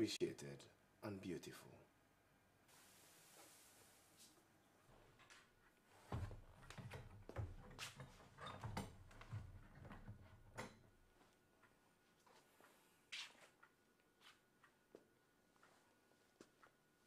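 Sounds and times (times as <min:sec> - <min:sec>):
wooden door opening and shutting: 0:06.1 - 0:10.9.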